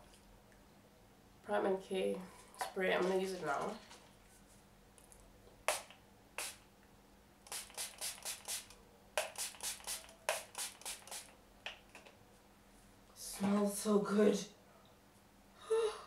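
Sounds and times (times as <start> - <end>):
face mist spray hissing: 5.7 - 6.6, 7.4 - 11.4.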